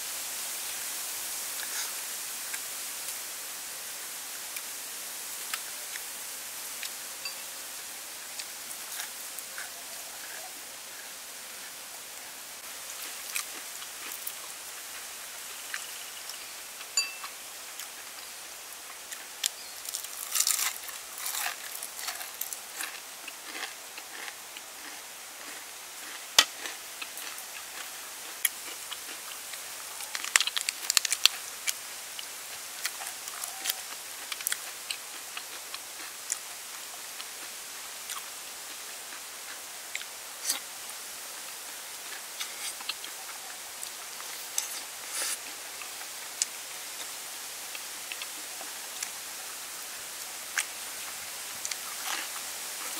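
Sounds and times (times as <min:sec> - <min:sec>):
steady background hiss: 0:00.0 - 0:52.9
crunchy chewing: 0:12.9 - 0:18.2, 0:18.9 - 0:40.7, 0:42.0 - 0:49.2, 0:50.5 - 0:52.9.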